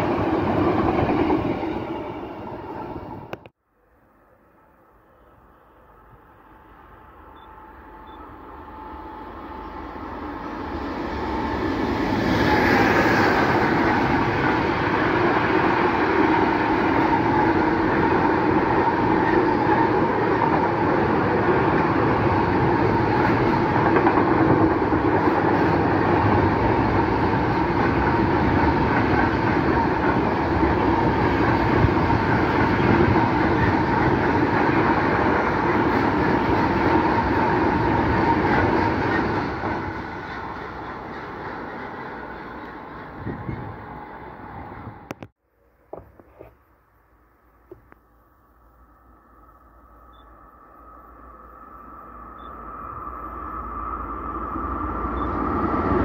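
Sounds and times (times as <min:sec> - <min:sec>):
steel wheels rolling on rail: 0:00.0 - 0:03.5, 0:07.4 - 0:45.3
electric locomotive passing: 0:00.0 - 0:45.3, 0:48.3 - 0:56.0.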